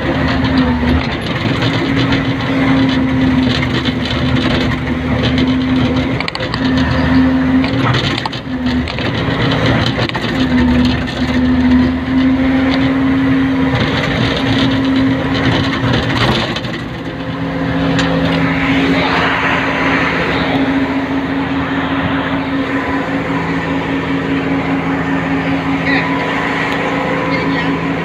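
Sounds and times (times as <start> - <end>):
knocks and rattles: 0.0 - 13.0, 13.6 - 18.7
excavator engine and hydraulics: 0.0 - 28.0.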